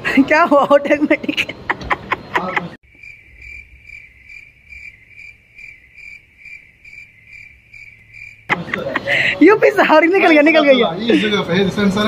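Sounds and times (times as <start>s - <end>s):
cricket chirping: 2.0s - 9.4s.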